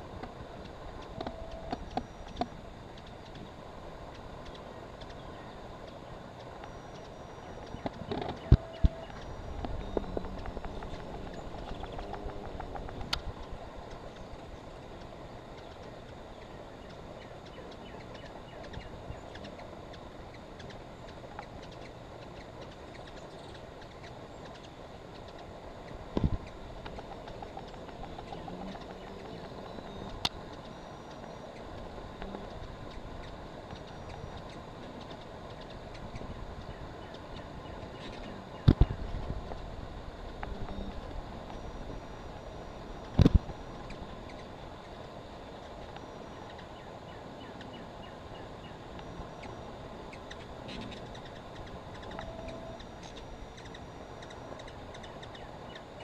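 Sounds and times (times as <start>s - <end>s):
outdoor background noise: 0.0s - 56.0s
short chirp-like tones: 1.0s - 3.3s, 5.5s - 12.0s, 26.4s - 39.0s, 40.5s - 56.0s.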